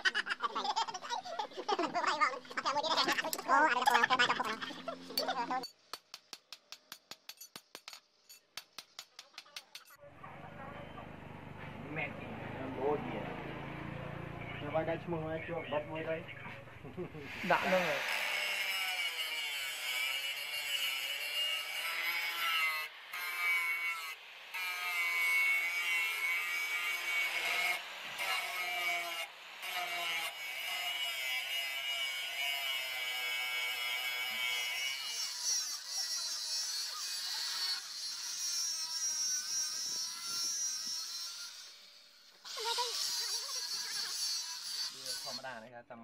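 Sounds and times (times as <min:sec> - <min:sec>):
angle grinder grinding steel: 0:00.0 - 0:05.8, 0:17.3 - 0:45.6.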